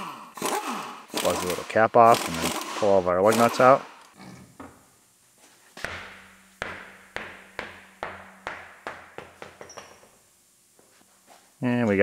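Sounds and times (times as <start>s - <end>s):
tire bouncing on concrete floor: 5.8s - 10.3s.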